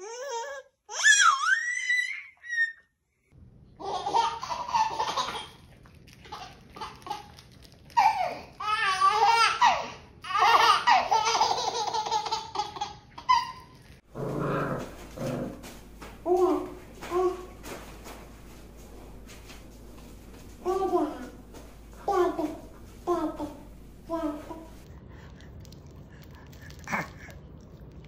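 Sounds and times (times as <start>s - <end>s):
baby giggling: 3.8s - 5.6s, 9.0s - 13.8s.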